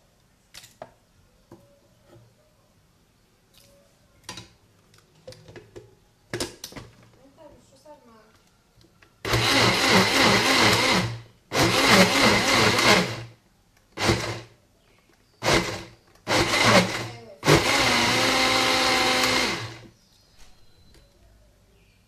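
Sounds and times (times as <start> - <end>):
electric blender pulsing: 9.3 - 13.3, 14.0 - 14.5, 15.4 - 19.9.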